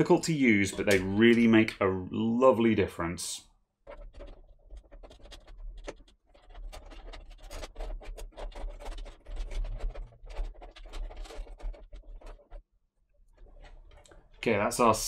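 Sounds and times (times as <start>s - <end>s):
cable scratching and rubbing: 0.0s - 15.0s.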